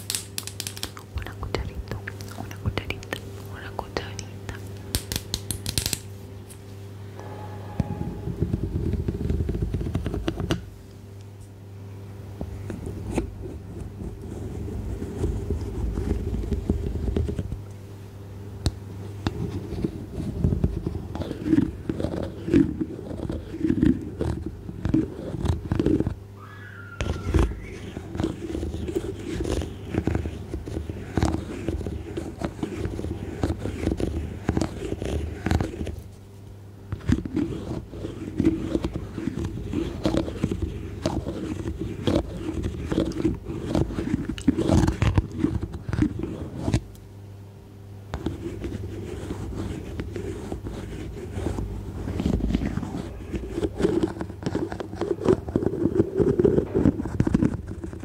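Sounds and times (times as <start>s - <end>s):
scratching and rubbing: 7.2s - 10.6s, 12.8s - 17.6s, 19.3s - 46.9s, 48.1s - 58.0s.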